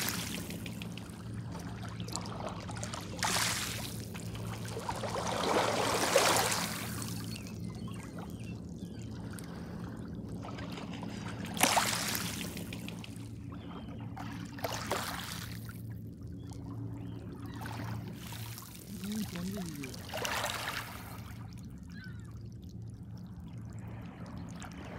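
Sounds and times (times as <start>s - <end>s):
waves lapping on pebble shore: 0.0s - 0.5s, 3.1s - 4.0s, 18.2s - 21.2s.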